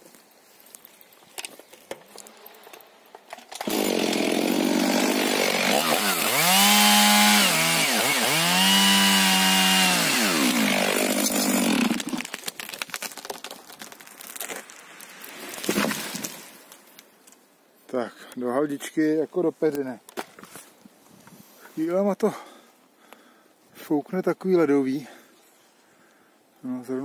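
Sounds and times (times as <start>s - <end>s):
tree cracking and rustling: 0.0s - 7.9s, 8.5s - 17.5s
chainsaw cutting wood: 3.3s - 14.0s.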